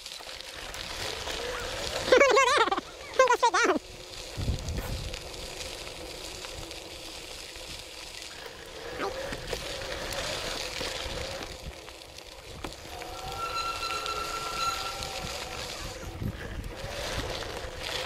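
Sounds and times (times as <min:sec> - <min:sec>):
bike tyres rushing on gravel: 0:00.0 - 0:18.0
bike ticks and knocks: 0:09.2 - 0:13.2.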